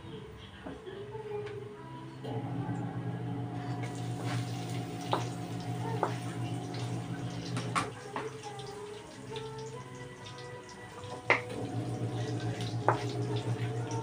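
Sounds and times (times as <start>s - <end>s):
food sizzling in oil: 3.8s - 14.0s.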